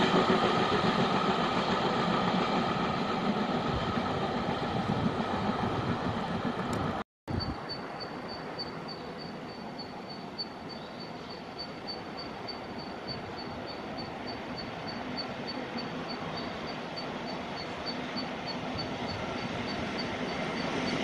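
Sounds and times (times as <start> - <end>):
distant train rumble: 0.0 - 21.0.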